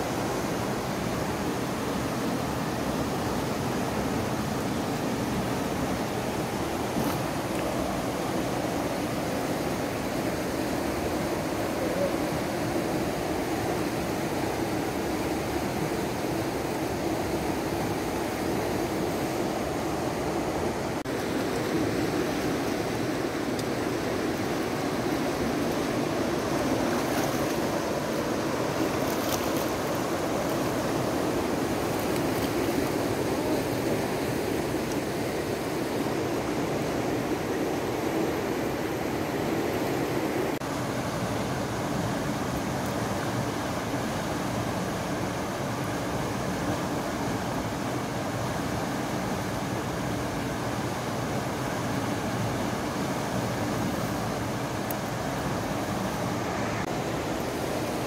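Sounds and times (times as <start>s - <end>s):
river rushing over rocks: 0.0s - 58.0s.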